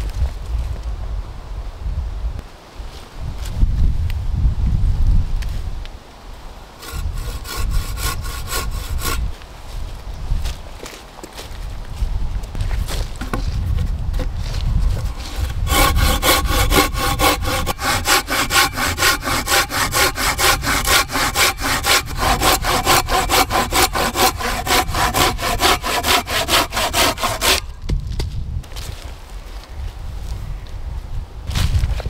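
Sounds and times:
hand saw cutting log: 6.8s - 9.3s, 15.0s - 27.7s.

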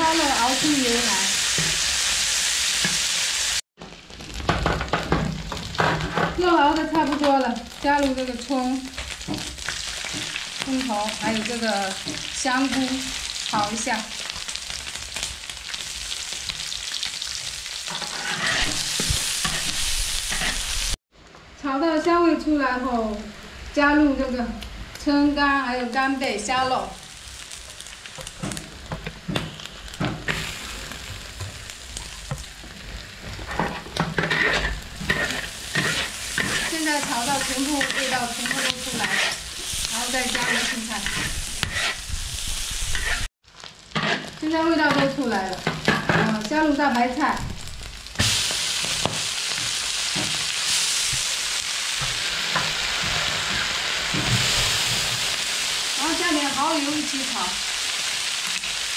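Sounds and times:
food sizzling in hot oil: 0.0s - 21.0s, 22.5s - 58.9s
metal spatula scraping wok: 17.8s - 21.0s, 33.3s - 43.3s, 43.9s - 46.4s.

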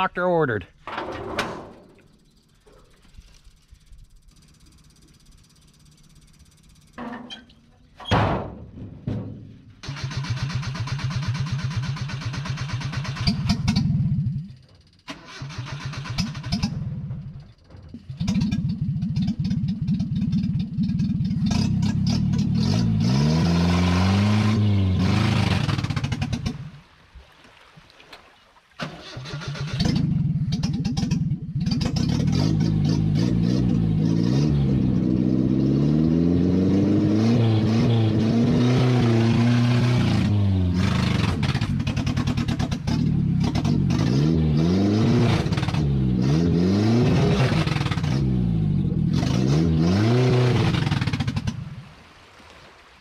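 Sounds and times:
pickup engine revving: 15.2s - 26.7s, 29.0s - 51.7s.

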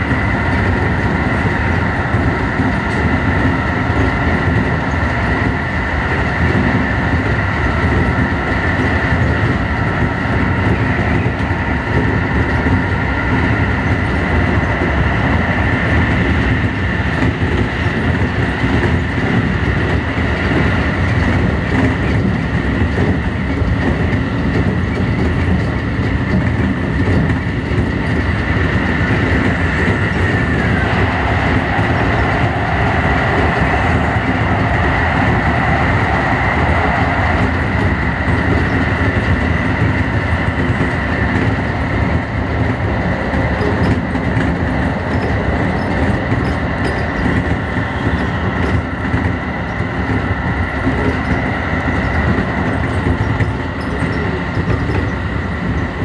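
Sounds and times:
high tone from train: 0.0s - 56.0s
lower train tone: 0.0s - 56.0s
train wheels rumbling on rail: 0.0s - 56.0s.

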